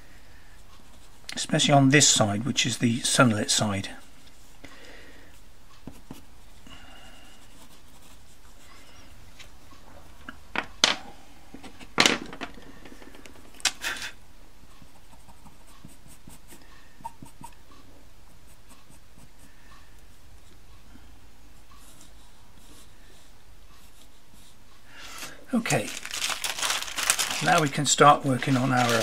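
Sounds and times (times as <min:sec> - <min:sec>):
pencil scratching on paper: 0:00.5 - 0:01.3, 0:05.8 - 0:06.6, 0:07.2 - 0:09.0, 0:14.7 - 0:17.6, 0:18.2 - 0:19.8, 0:21.6 - 0:24.6.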